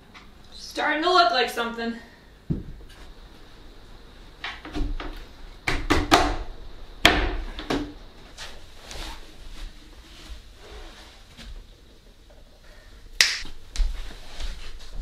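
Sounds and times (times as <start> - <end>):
wooden furniture knocks and thumps: 2.5 - 2.9.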